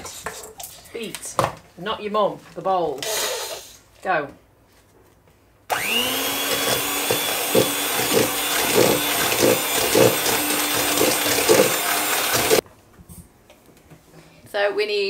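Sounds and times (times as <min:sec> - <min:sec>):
electric hand mixer running: 0:05.7 - 0:12.6
mixer beaters knocking bowl: 0:05.7 - 0:12.6.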